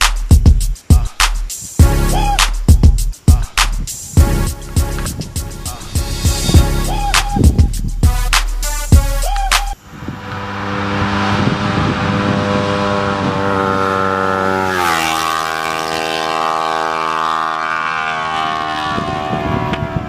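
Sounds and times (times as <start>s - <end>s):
motorcycle passing by: 10.0s - 20.0s.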